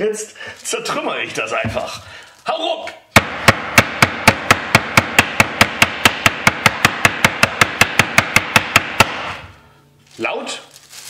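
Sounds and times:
meat mallet pounding: 0:03.2 - 0:09.5.

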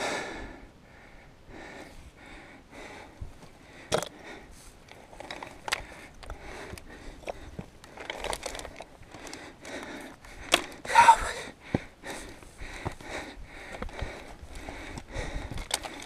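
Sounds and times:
person breathing hard: 0:00.0 - 0:16.0
loose rock scraping and knocking: 0:04.9 - 0:09.3, 0:13.7 - 0:16.0.

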